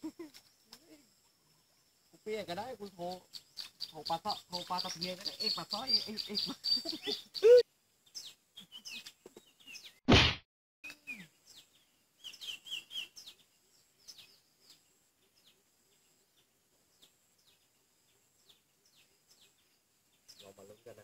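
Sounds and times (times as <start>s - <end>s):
small birds chirping: 0.0s - 10.0s, 10.8s - 21.0s
loud thump: 10.1s - 10.4s.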